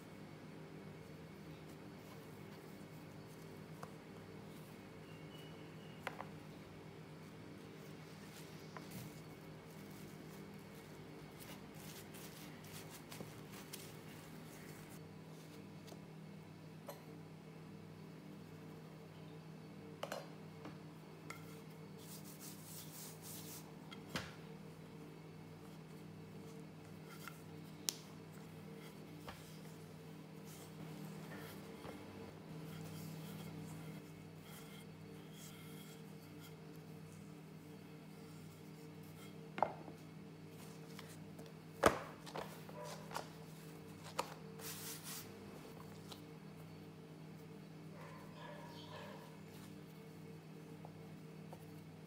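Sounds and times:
steady low hum: 0.0s - 52.0s
hands rubbing flour on dough: 7.2s - 15.8s, 21.3s - 23.8s, 25.0s - 41.4s, 42.5s - 46.8s.

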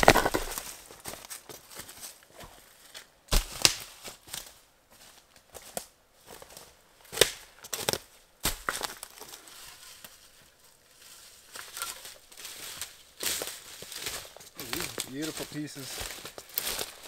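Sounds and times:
footsteps crunching dry leaves: 0.0s - 17.0s
twigs snapping: 3.3s - 4.5s, 7.1s - 9.4s, 11.5s - 17.0s.

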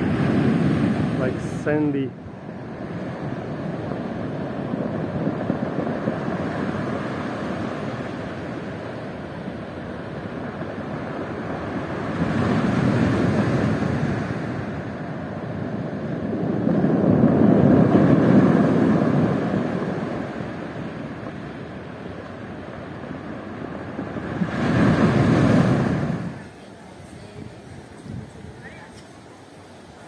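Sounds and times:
surf washing onto shore: 0.0s - 30.0s.

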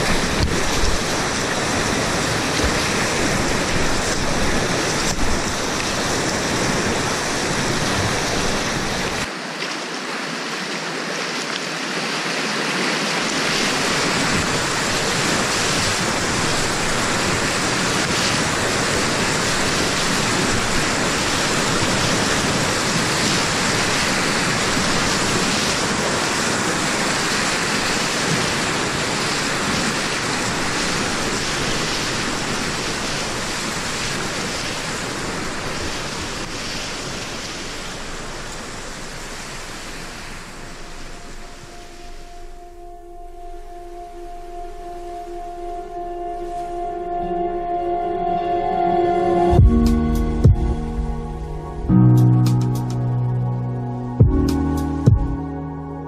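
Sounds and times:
whitewater rushing and churning: 0.0s - 55.9s.

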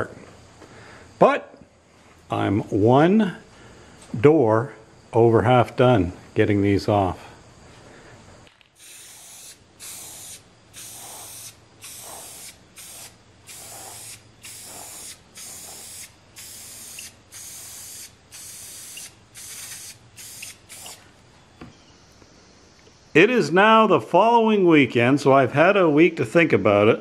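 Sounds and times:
spray paint can hissing: 8.7s - 21.0s.

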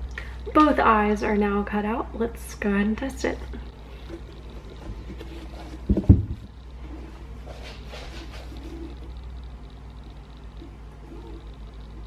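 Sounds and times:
faint rustling: 3.6s - 9.8s.

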